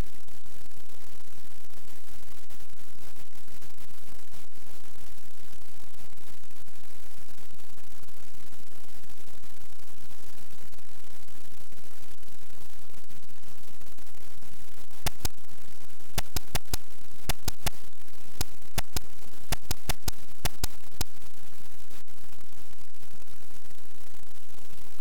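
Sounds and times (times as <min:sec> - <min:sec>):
sharp clicks: 0:15.1 - 0:15.4, 0:16.2 - 0:17.8, 0:18.4 - 0:21.1.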